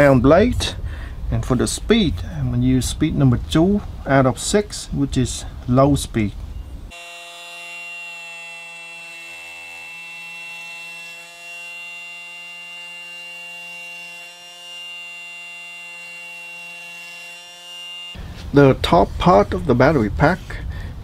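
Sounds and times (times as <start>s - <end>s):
oscillating multi-tool humming: 6.9s - 18.2s.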